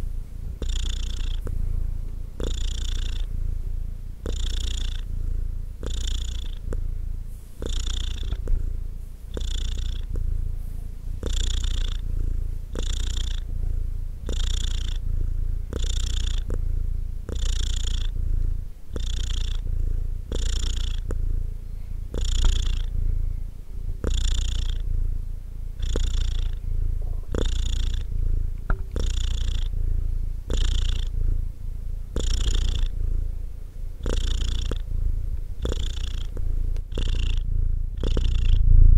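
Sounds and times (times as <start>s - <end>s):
cat purring: 0.0s - 38.9s.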